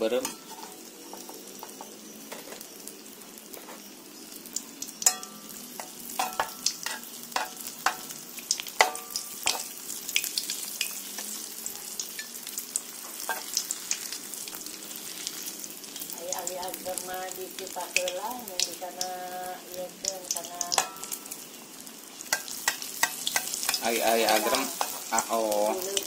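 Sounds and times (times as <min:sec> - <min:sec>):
batter sizzling in hot oil: 0:00.0 - 0:26.0
metal spoon clinking on wok: 0:05.0 - 0:08.1, 0:08.8 - 0:09.7, 0:20.7 - 0:21.2, 0:22.3 - 0:25.0.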